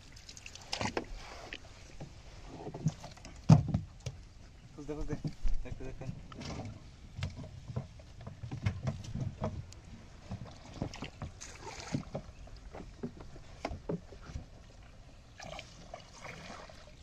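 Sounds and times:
knocks and thuds on wooden boat: 2.0 - 4.2, 4.9 - 14.6.

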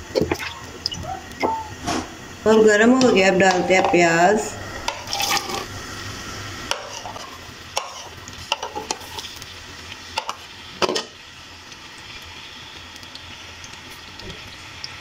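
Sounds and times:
onions sizzling in oil: 0.0 - 15.0
ladle scraping metal pan: 3.4 - 5.7.

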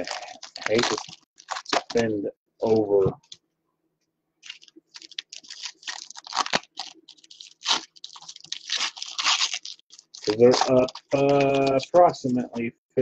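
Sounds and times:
wrapper tearing and crinkling: 0.0 - 2.8, 4.4 - 12.0.

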